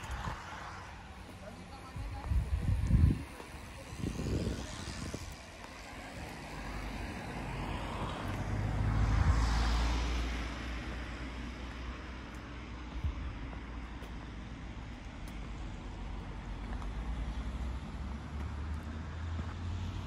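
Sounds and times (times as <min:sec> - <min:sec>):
car driving past: 0:05.9 - 0:12.1.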